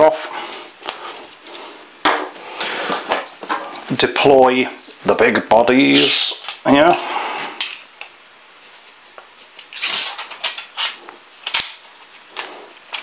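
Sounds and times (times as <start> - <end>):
antenna handling rustling and clicks: 2.8 - 3.9, 7.6 - 13.0.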